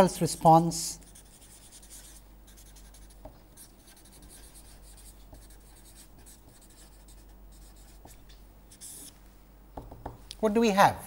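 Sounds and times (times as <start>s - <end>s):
marker scratching on paper: 1.1s - 9.2s.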